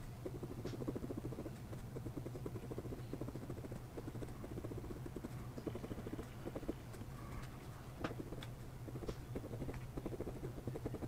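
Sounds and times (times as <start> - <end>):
pen nib scratching on paper: 0.0 - 11.0
steady low hum: 0.0 - 11.0.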